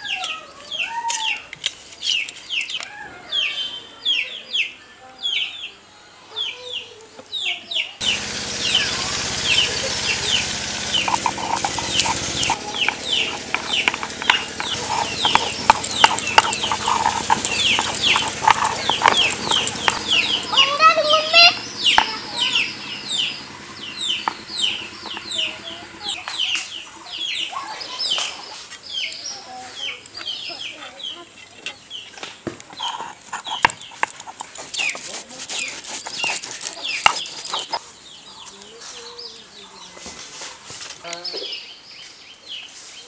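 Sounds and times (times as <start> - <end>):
chicks peeping: 6.4 - 32.0, 32.7 - 40.0
hen clucking: 8.0 - 28.4, 32.8 - 37.8
stone grinding on stone: 10.8 - 20.7, 32.8 - 37.8.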